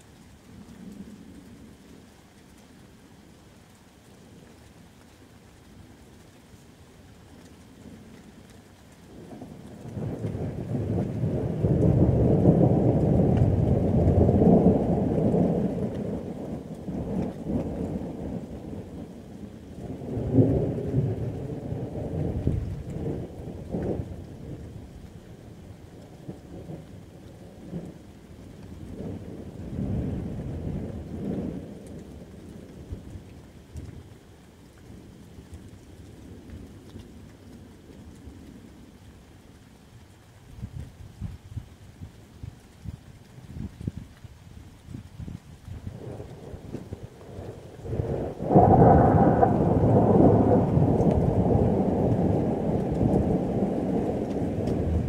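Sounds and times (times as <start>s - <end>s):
rain falling steadily: 0.0s - 55.0s
rolling thunder: 9.3s - 19.2s, 19.9s - 25.0s, 45.8s - 55.0s
sharp thunder cracks: 47.8s - 55.0s.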